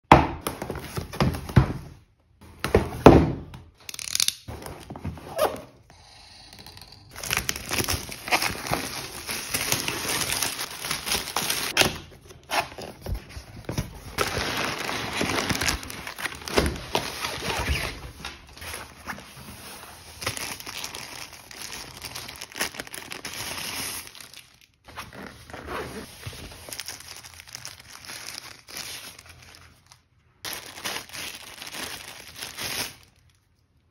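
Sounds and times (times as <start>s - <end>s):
plastic packaging crinkling: 7.1s - 33.6s.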